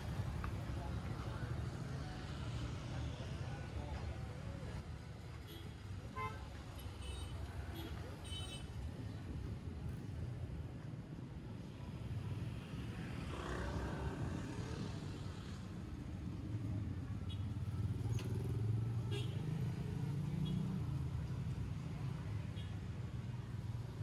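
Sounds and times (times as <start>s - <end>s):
car and scooter engines running: 11.9s - 24.0s.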